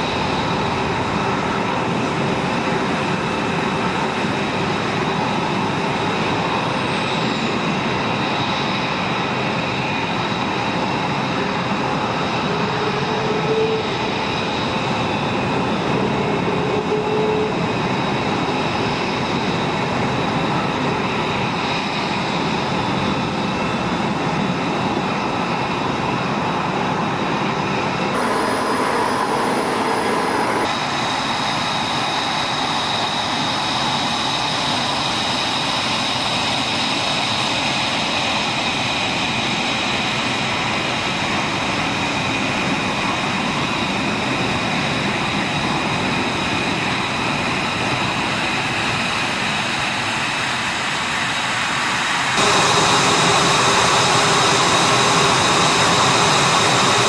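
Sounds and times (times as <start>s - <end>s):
jet engines rushing with whine: 0.0s - 57.0s.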